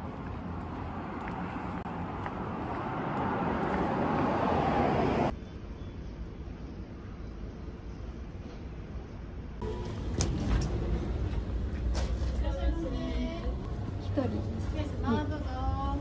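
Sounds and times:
passing vehicle: 0.0s - 5.4s
street background noise: 0.0s - 16.0s.

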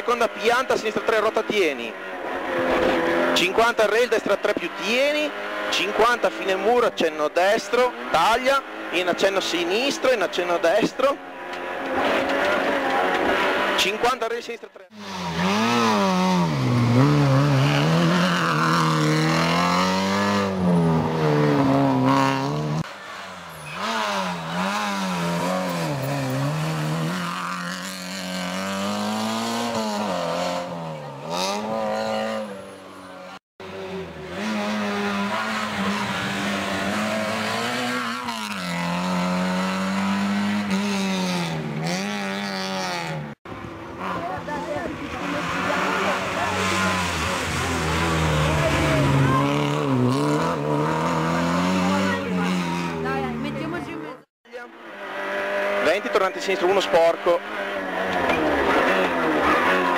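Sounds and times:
rally car engine revving: 0.0s - 59.9s.

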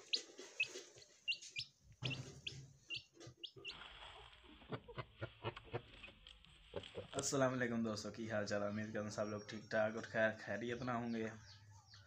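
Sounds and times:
faint knocks and scratching: 0.0s - 7.2s
chick peeping: 0.0s - 7.3s.

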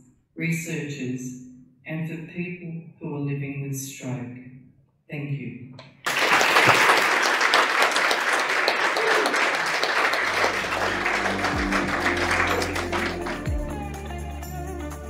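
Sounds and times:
audience applause: 6.1s - 13.7s
music with steady low notes: 10.2s - 15.0s.

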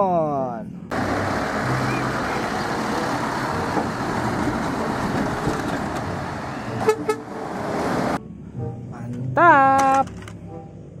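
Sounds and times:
truck driving past: 0.9s - 8.8s
truck horn toot: 6.5s - 7.4s.

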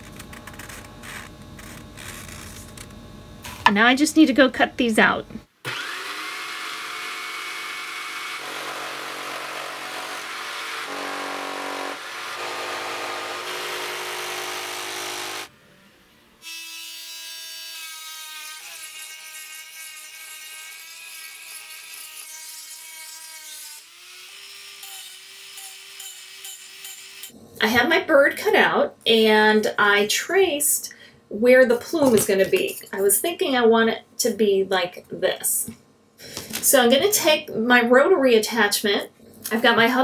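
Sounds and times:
power tool motor whine: 5.7s - 18.7s
saw cutting wood: 5.7s - 27.4s.

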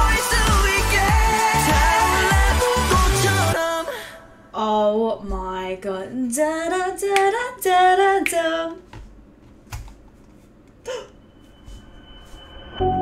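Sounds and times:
woman singing: 0.0s - 8.8s.

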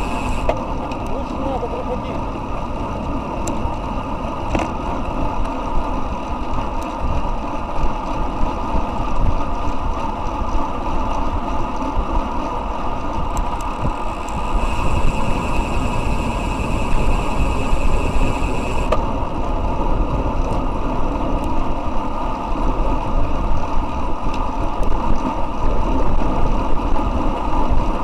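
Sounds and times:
bicycle freehub buzzing: 0.0s - 0.9s, 9.9s - 20.0s
tyre noise on asphalt: 0.0s - 28.0s
wind rushing over microphone: 0.0s - 28.0s.

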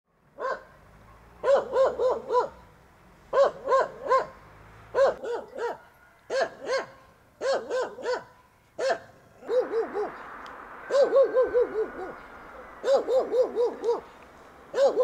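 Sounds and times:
dog barking: 0.4s - 2.6s, 3.3s - 10.2s, 12.8s - 14.1s, 14.7s - 15.0s.

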